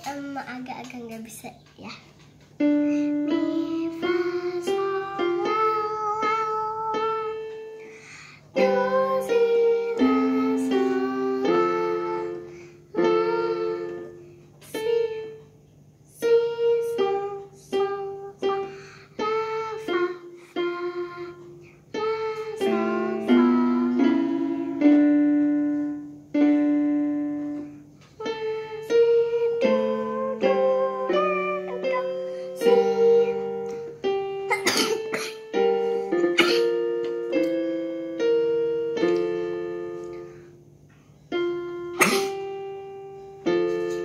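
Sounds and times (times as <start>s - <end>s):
electronic keyboard melody: 28.2s - 34.6s, 35.4s - 40.4s, 41.3s - 44.0s.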